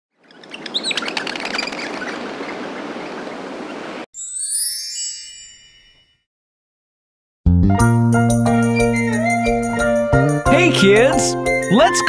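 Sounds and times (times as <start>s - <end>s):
birds chirping: 0.1s - 4.0s
bright twinkling chime: 4.1s - 6.3s.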